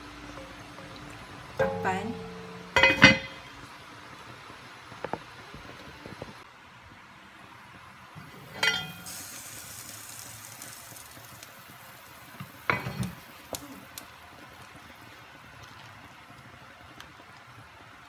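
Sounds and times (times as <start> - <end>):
broth bubbling at a boil: 0.0 - 18.0
pot lid clanking: 1.6 - 3.5, 8.5 - 9.1.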